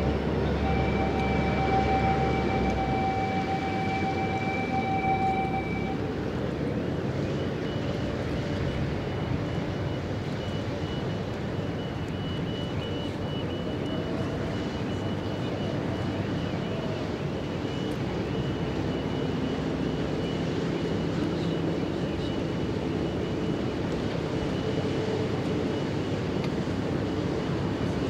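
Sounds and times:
thin high whine: 0.0 - 6.1
ship engine drone: 0.0 - 28.0.

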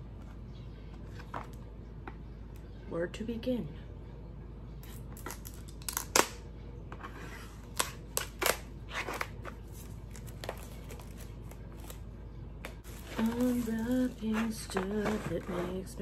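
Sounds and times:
packaging crinkling and snapping: 5.2 - 6.4, 7.7 - 12.0, 12.8 - 15.4.

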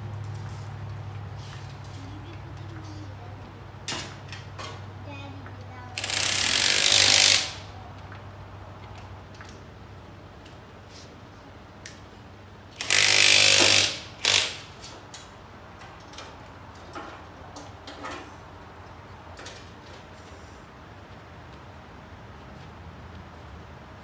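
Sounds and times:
impact wrench bursts: 6.0 - 7.7, 12.8 - 14.9.

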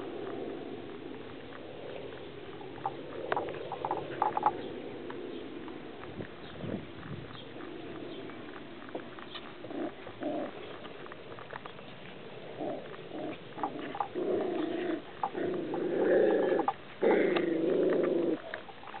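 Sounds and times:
puppies growling in play: 7.5 - 11.6, 12.4 - 19.0.

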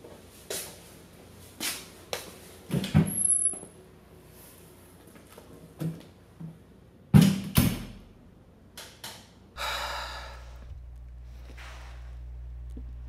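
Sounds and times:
low room hum: 0.0 - 13.0
faint breath: 9.6 - 12.3.

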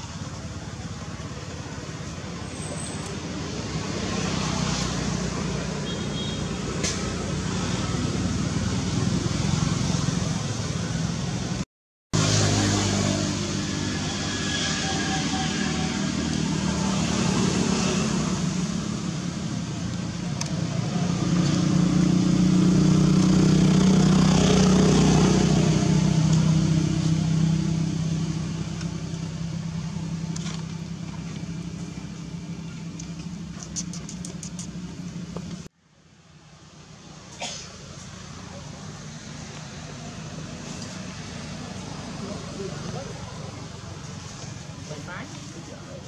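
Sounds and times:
vehicle engine passing by: 12.2 - 31.8.

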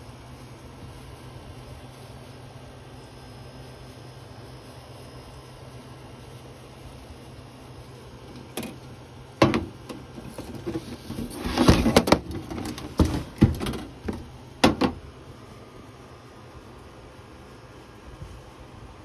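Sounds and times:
faint steady hum: 0.0 - 19.0
scraping rustle: 10.1 - 14.2.

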